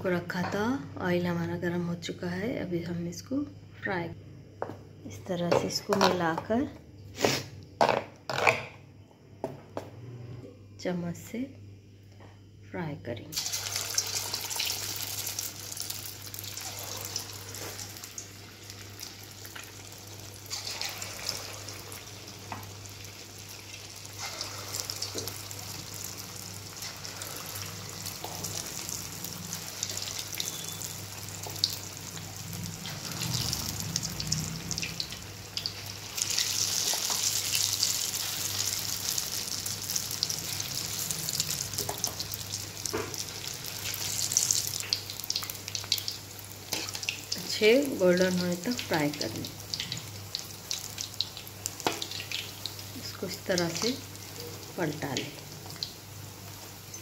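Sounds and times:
deep-frying sizzle and crackling: 13.3 - 57.0.

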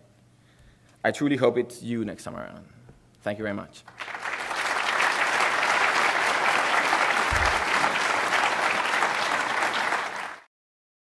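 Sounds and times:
audience applauding: 3.9 - 10.5
low bump: 7.3 - 7.9.

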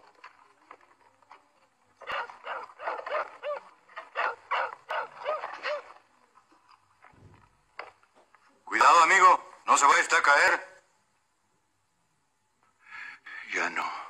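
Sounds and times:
dog barking rapidly: 2.0 - 6.0
dull low thump: 7.1 - 7.8.

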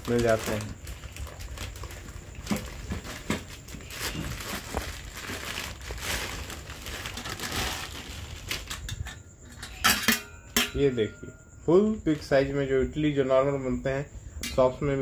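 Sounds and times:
plastic wrapping crinkling: 0.0 - 9.1.

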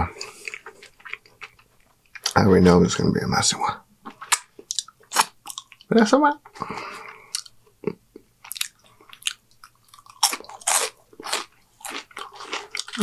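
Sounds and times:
person chewing fries: 0.0 - 2.4, 4.1 - 5.9, 7.2 - 13.0.

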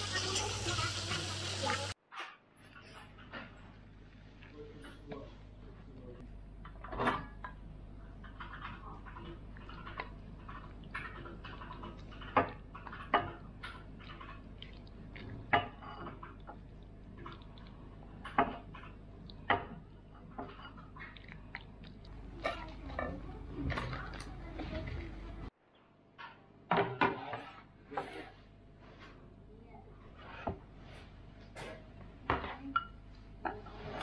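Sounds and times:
spatula scraping frying pan: 27.0 - 28.4, 30.1 - 31.8.

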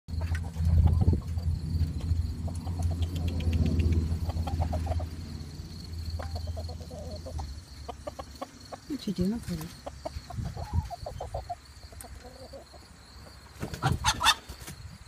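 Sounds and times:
steady low rumble: 0.1 - 11.9
chicken clucking: 0.1 - 14.7.

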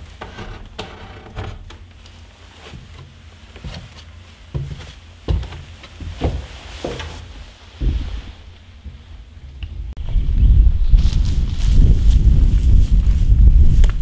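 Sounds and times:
footsteps on wooden floorboards: 2.6 - 9.6
heavy thumps: 4.5 - 9.3.

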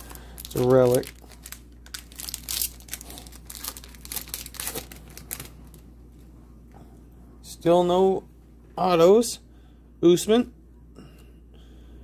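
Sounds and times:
trading card packaging crinkling: 0.0 - 5.9.

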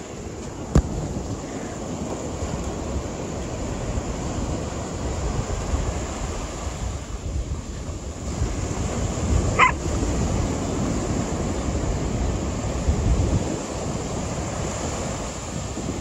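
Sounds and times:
wind buffeting microphone: 0.0 - 16.0
dog yipping: 9.6 - 9.8.

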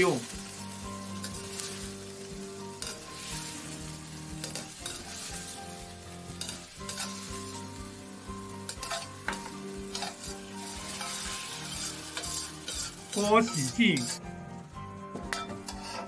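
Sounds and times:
scallops sizzling in a wok: 0.0 - 16.0
metal ladle scraping wok: 6.4 - 7.3, 8.7 - 14.2, 15.3 - 16.0.

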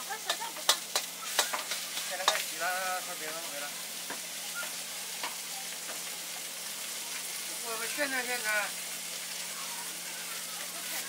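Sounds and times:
food sizzling in a wok: 0.0 - 11.0.

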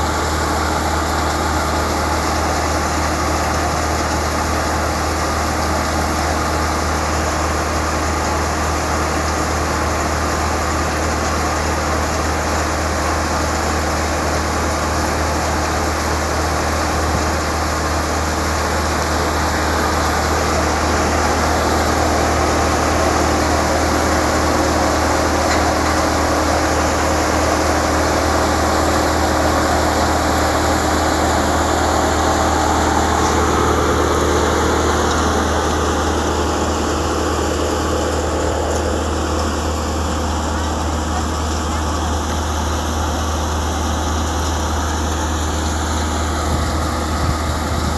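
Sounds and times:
tractor engine and thresher drone: 0.0 - 47.9.

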